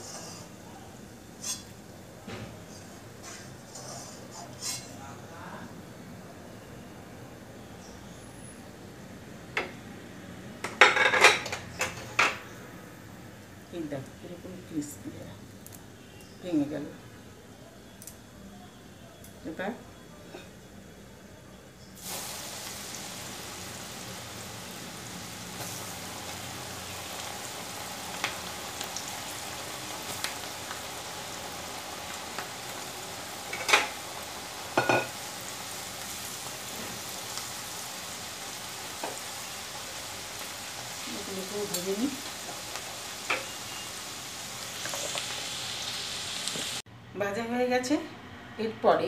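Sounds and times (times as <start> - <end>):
okra deep-frying in oil: 0.0 - 10.0, 10.6 - 46.9.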